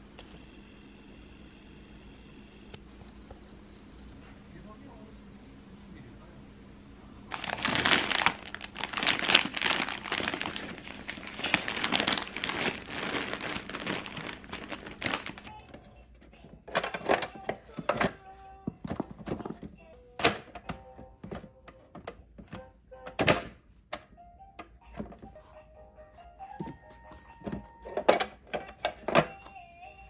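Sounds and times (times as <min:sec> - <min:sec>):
packages crinkling and rustling: 0:07.3 - 0:19.9.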